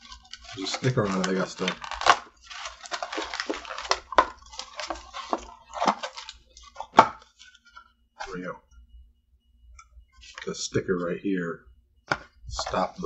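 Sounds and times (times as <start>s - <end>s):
cardboard box tearing: 0.0s - 7.0s
cardboard snapping: 0.0s - 7.2s.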